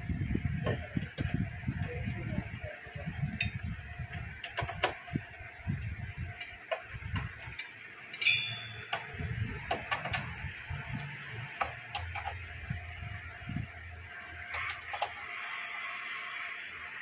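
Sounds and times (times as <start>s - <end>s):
ringing metallic clink: 8.1s - 9.1s.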